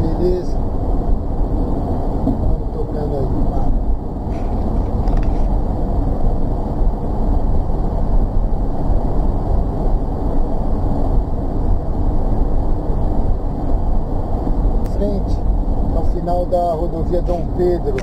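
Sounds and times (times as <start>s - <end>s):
vehicle cabin road rumble: 0.0s - 18.0s.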